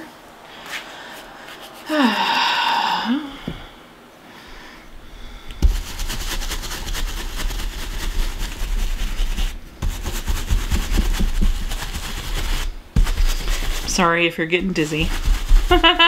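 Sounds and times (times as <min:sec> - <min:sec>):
stencil brush dabbing taps: 0:09.8 - 0:15.9.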